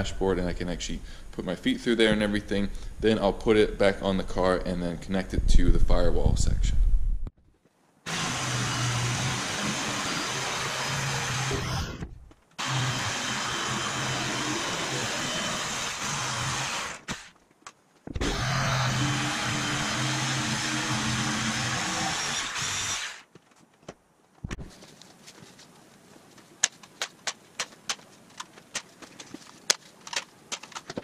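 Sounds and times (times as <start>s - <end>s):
jigsaw cutting wood sheet: 8.1s - 12.0s, 12.6s - 17.3s, 18.2s - 23.2s.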